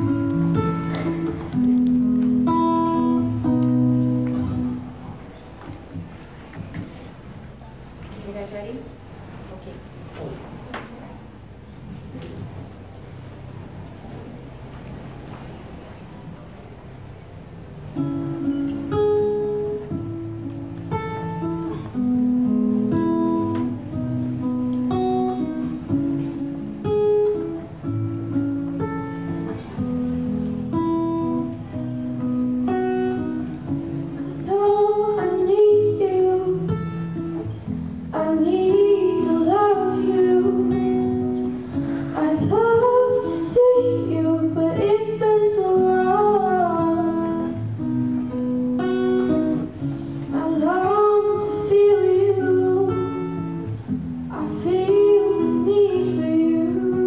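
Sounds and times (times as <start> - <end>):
acoustic guitar strumming: 0.0 - 7.4, 16.8 - 57.0
women singing a duet: 42.1 - 47.5, 54.3 - 57.0.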